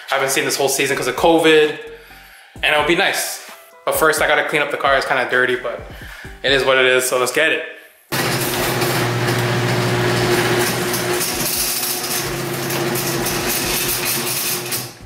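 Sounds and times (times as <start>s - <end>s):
garage door motor hum: 8.1s - 15.0s.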